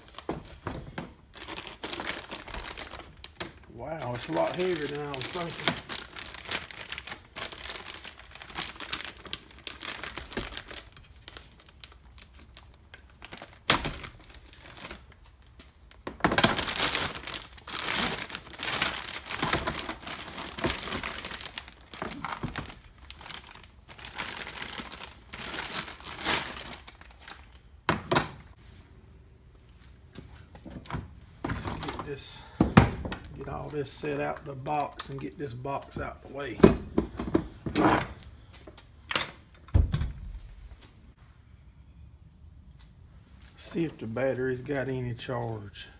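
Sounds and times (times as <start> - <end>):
plastic wrapping crinkling: 1.3 - 27.7.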